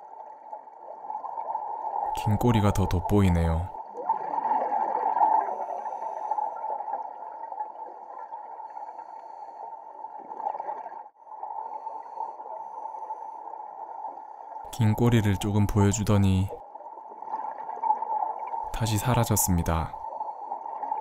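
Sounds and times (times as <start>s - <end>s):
water gurgling: 0.0s - 8.7s, 13.7s - 21.0s.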